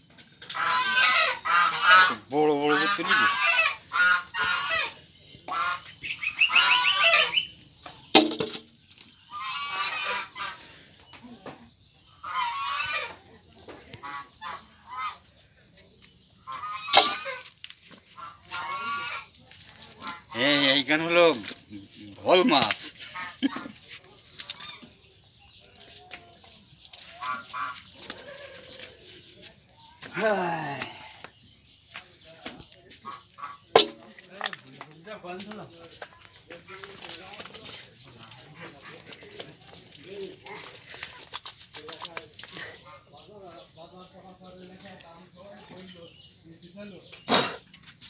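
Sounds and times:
birds calling: 0.0s - 48.0s
geese honking: 0.4s - 7.6s, 9.2s - 10.8s, 12.0s - 13.2s, 13.9s - 15.4s, 16.4s - 24.9s, 26.9s - 29.0s, 33.0s - 34.5s
net rustling and clicking: 37.0s - 42.6s.

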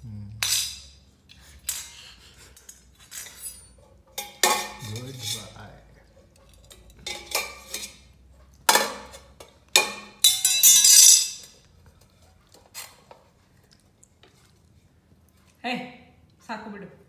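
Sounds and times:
metal utensil clanking in pot: 3.1s - 5.6s, 6.6s - 8.1s.

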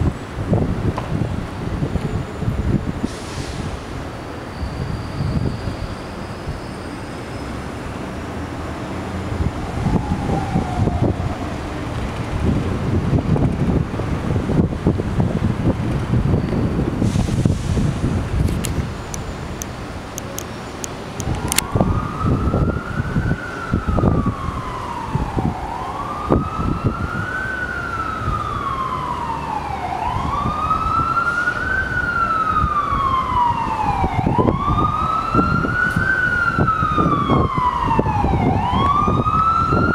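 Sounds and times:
gusty low rumble: 0.0s - 4.1s, 8.2s - 27.3s, 28.0s - 39.9s
siren wailing: 9.3s - 12.0s, 21.2s - 39.9s.

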